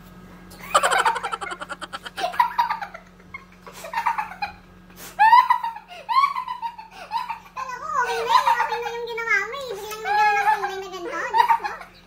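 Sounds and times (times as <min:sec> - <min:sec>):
man and woman laughing: 0:00.6 - 0:02.7.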